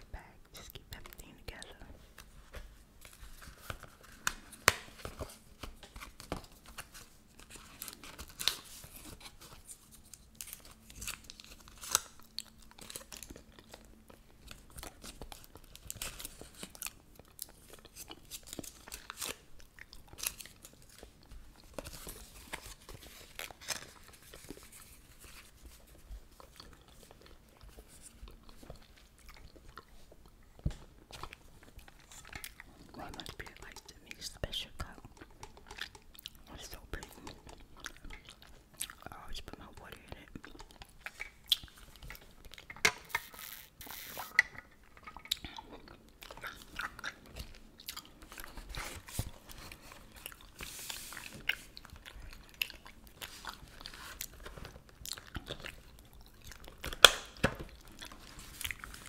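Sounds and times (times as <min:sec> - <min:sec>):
gum pack crinkling: 0:03.0 - 0:30.1, 0:30.8 - 0:59.0
gum chewing: 0:34.8 - 0:48.8, 0:51.4 - 0:59.0.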